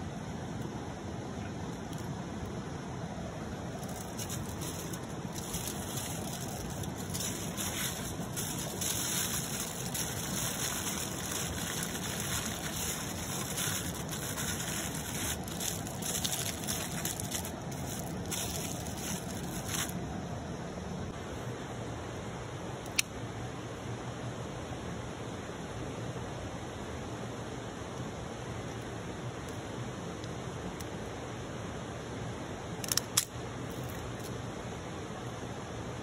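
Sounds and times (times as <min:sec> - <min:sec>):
stream running: 0:03.6 - 0:20.0
aluminium foil crinkling: 0:03.8 - 0:20.0.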